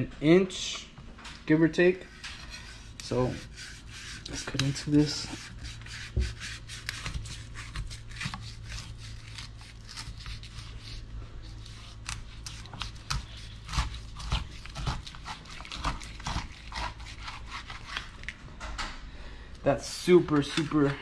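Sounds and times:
knife sawing through meat: 2.1 - 18.2, 20.1 - 21.0.

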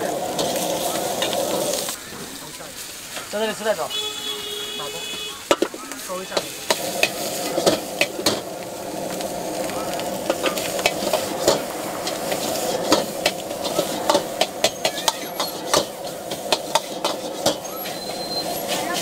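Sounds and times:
ladle scraping wok: 0.0 - 3.3, 5.1 - 19.0
rice sizzling in a wok: 0.0 - 19.0.

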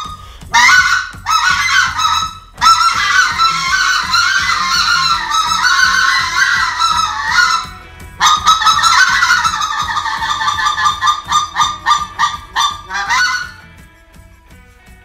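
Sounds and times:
goose call notes and clucks: 0.0 - 13.7.

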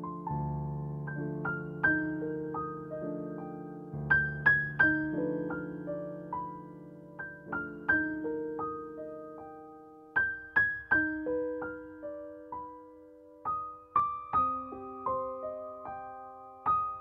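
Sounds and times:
gentle piano melody: 0.0 - 17.0.

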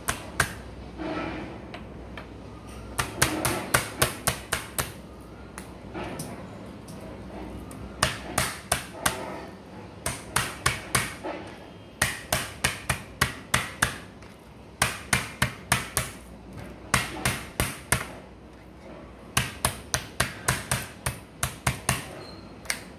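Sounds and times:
metal mallet pounding meat: 3.0 - 5.0, 10.0 - 11.3, 12.0 - 14.0, 14.8 - 16.2, 16.9 - 18.2, 19.3 - 22.2.

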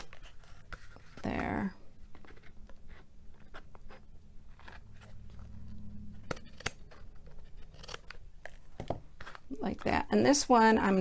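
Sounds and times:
scissors snipping cardstock: 6.2 - 8.6.

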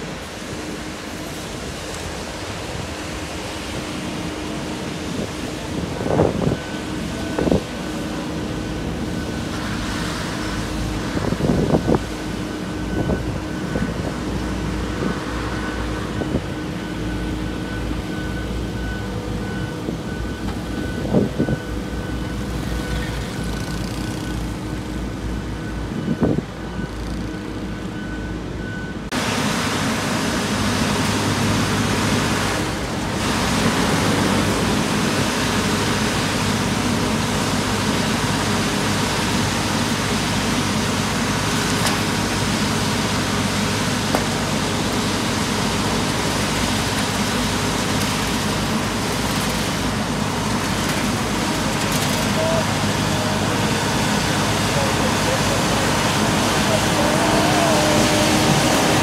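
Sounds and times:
diesel engine running loudly: 0.0 - 59.0
dump truck tipping asphalt: 30.9 - 59.0.

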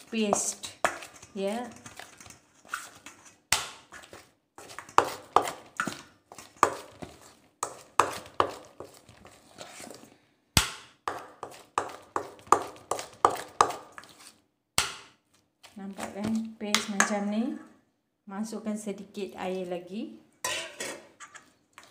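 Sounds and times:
spoon scraping metal bowl: 0.0 - 10.0, 20.4 - 21.9.

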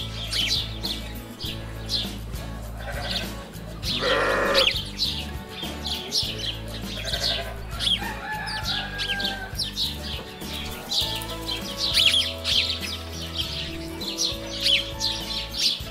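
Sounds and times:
small birds chirping: 0.0 - 15.9
soft background music: 0.0 - 15.9
drawn-out animal call: 2.6 - 4.9, 6.3 - 9.8
chicken calling: 2.8 - 4.8, 6.0 - 10.0.

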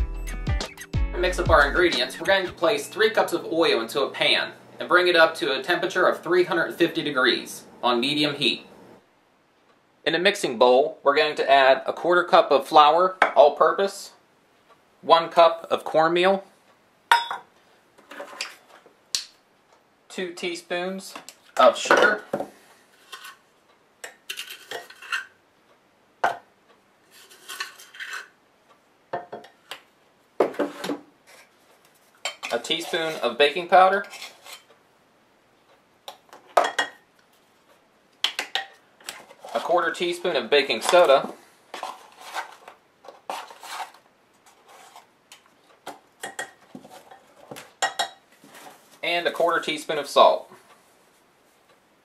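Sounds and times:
spoon scraping sugar: 22.9 - 23.4, 24.3 - 25.4, 27.1 - 28.4, 32.5 - 34.7, 41.7 - 45.1
scraping and rustling: 27.1 - 28.3, 40.8 - 45.1, 48.3 - 49.1.

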